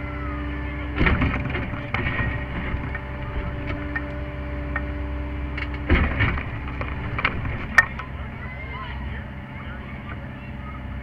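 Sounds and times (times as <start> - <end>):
excavator engine and hydraulics: 0.0 - 11.0
bucket knocking and scraping dirt: 1.0 - 8.1.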